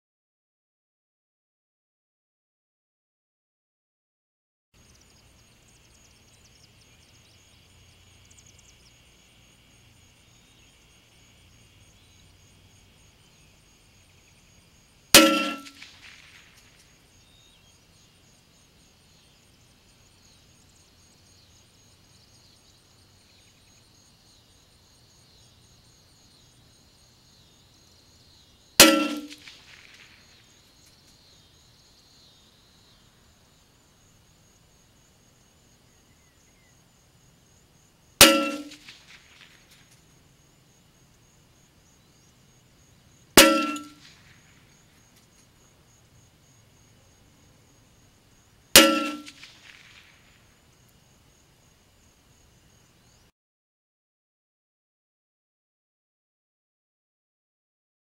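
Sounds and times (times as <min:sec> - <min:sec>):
rifle shots: 0:15.2 - 0:16.8, 0:28.8 - 0:30.3, 0:48.8 - 0:50.4.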